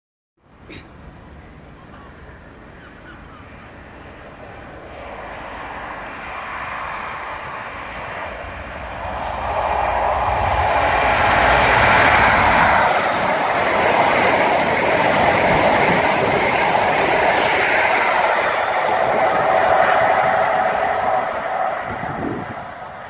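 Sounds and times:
train wheels clattering on rails: 9.5 - 23.0.

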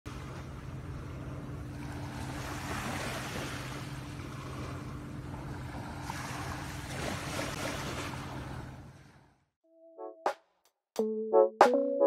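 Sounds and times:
small waves washing on sand: 0.1 - 9.2.

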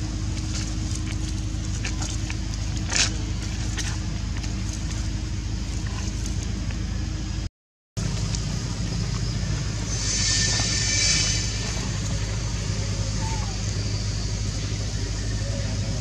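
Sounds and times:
low engine-like hum: 0.0 - 16.0
high-pitched ticks or squeaks: 9.9 - 12.1.

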